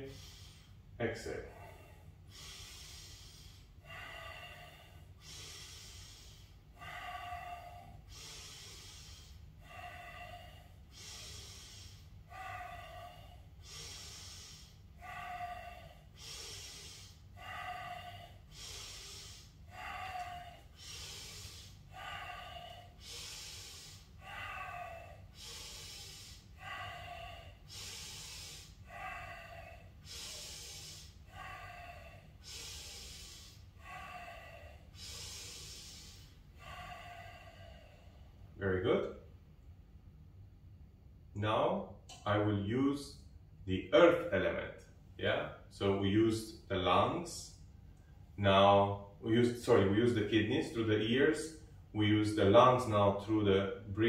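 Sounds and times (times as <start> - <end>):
person breathing deeply: 0.0 - 38.6.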